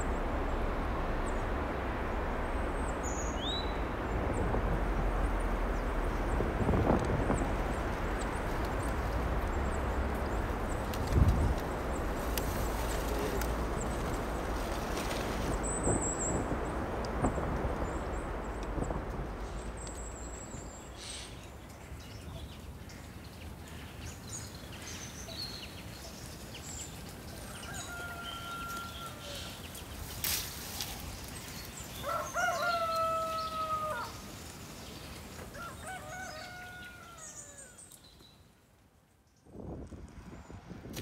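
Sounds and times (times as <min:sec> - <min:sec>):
rooster crowing: 0:27.4 - 0:29.6, 0:32.0 - 0:34.2, 0:35.5 - 0:37.8.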